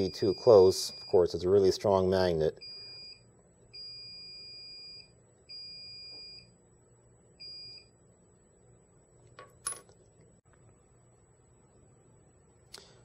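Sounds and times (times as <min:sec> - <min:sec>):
continuity buzzer beeping: 0:00.0 - 0:06.6, 0:07.4 - 0:08.0.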